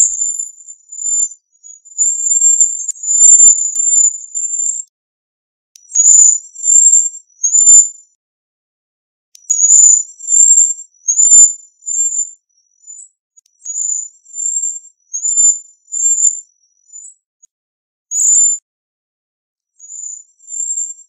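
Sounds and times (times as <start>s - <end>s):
high-pitched buzzy bird calls: 0.0s - 4.9s, 5.8s - 8.0s, 9.4s - 17.2s.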